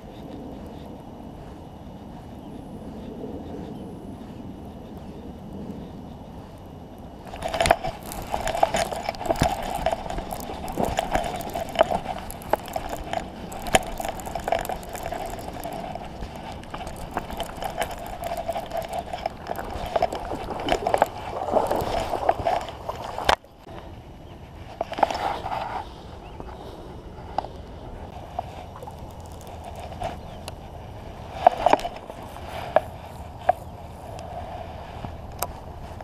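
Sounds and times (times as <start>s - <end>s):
fishing reel whirring and clicking: 5.8s - 23.4s, 28.1s - 34.3s.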